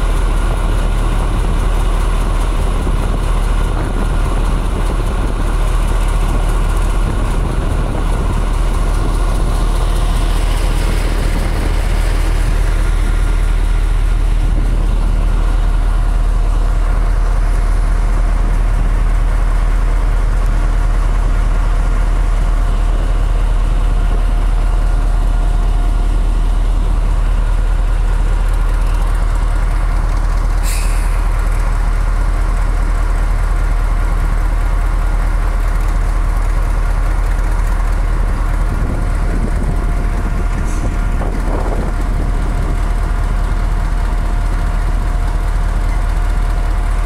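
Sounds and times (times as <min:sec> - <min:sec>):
diesel locomotive engine idling: 0:00.0 - 0:47.0
sharp hiss: 0:30.6 - 0:31.4.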